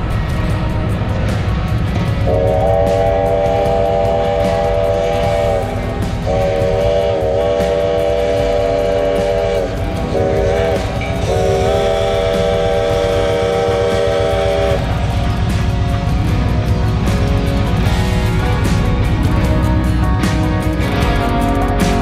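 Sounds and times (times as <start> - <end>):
low motorcycle engine rumble: 0.0 - 22.0
steam locomotive chime whistle: 2.2 - 15.1.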